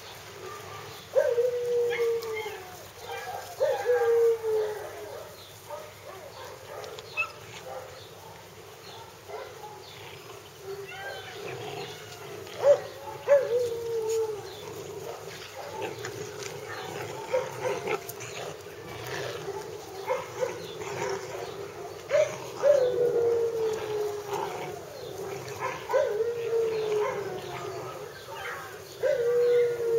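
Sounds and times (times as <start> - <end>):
puppies whining and yipping: 0.5 - 5.2, 10.7 - 29.9.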